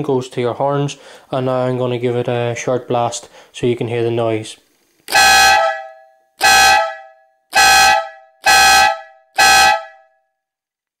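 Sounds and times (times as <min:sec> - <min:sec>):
air horn blasts: 0:05.1 - 0:10.1.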